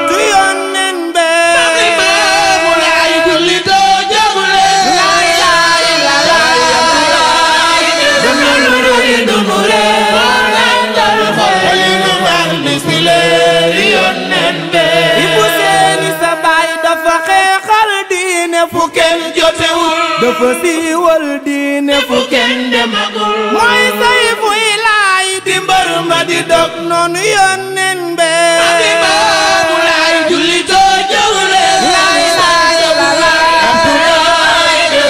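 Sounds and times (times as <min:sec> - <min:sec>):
group of voices chanting: 0:01.8 - 0:16.2, 0:28.6 - 0:35.0.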